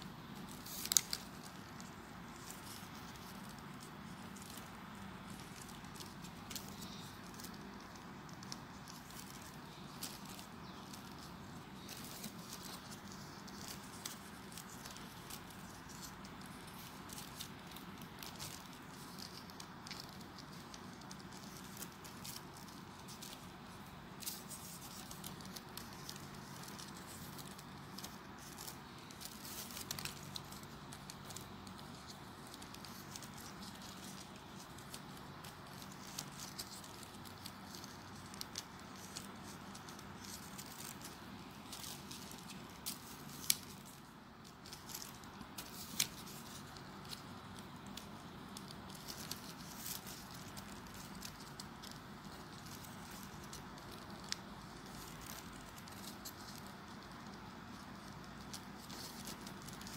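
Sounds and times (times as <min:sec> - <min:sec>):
paper rustling and clicking: 0:00.0 - 0:59.9.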